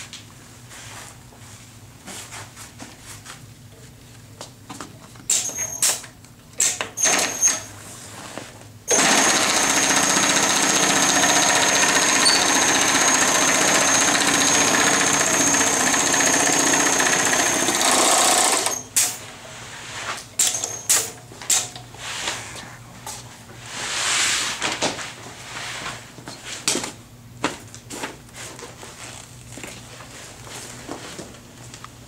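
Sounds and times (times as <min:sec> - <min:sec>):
sewing machine whining: 0:07.0 - 0:07.7, 0:08.9 - 0:19.0.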